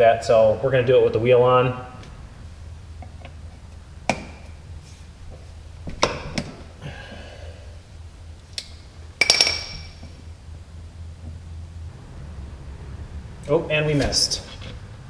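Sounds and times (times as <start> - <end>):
ringing metal clink: 9.2 - 10.0.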